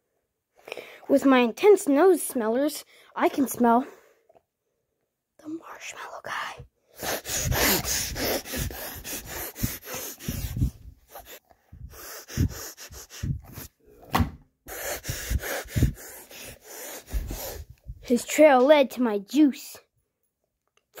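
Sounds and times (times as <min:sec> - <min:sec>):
person sniffing: 0:06.9 - 0:14.0, 0:14.7 - 0:17.9.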